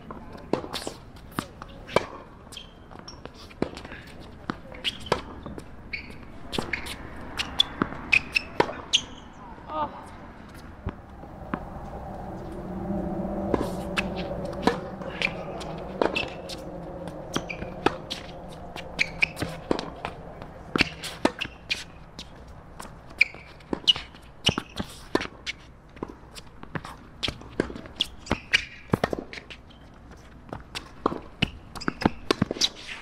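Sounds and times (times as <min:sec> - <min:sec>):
shoes squeaking: 0:04.8 - 0:09.4, 0:23.1 - 0:25.0.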